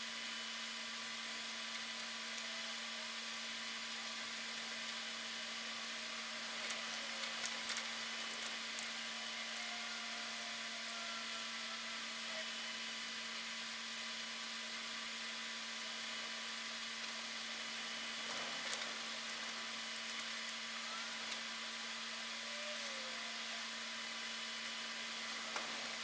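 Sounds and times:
steady hiss: 11.2s - 26.0s.

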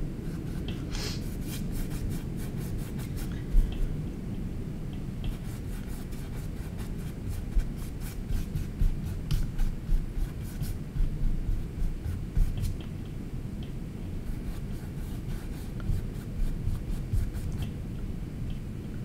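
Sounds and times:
steady low rumble: 0.0s - 19.0s
paintbrush scratching on canvas: 0.3s - 3.9s, 5.2s - 12.8s, 14.2s - 17.7s.

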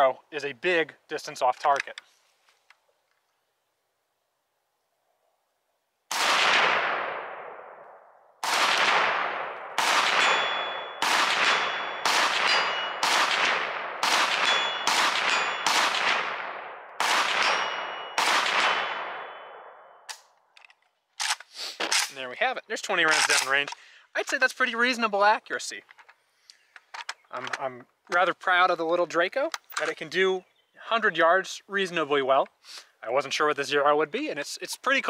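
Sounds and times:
gunshots echoing: 6.1s - 20.1s
bullet ringing on steel target: 10.0s - 13.2s, 14.2s - 16.0s, 17.3s - 20.1s.

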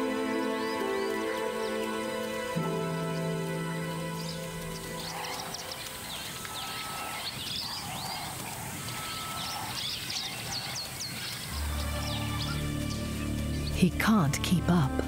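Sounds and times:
soft background music: 0.0s - 6.9s, 11.5s - 15.0s.

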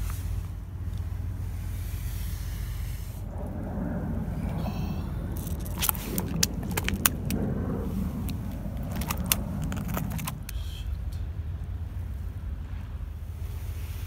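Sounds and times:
vehicle engine rumble: 0.0s - 14.0s.

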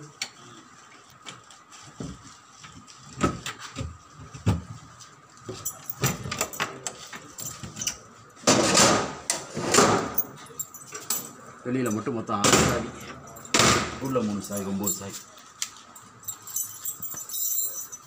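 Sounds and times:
drawer scraping rumble: 8.5s - 10.2s.

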